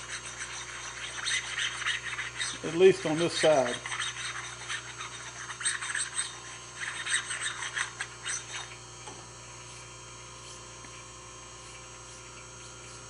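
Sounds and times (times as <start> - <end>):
steel parts scraping: 0.0 - 8.8
steady low hum: 0.0 - 13.0.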